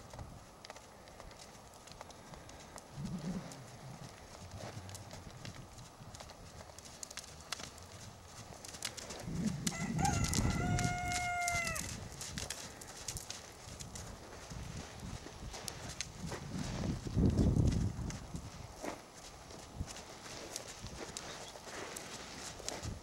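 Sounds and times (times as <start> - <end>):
horse hooves on sand: 0.0 - 23.0
low rumble: 2.9 - 5.8
rooster crowing: 9.6 - 11.9.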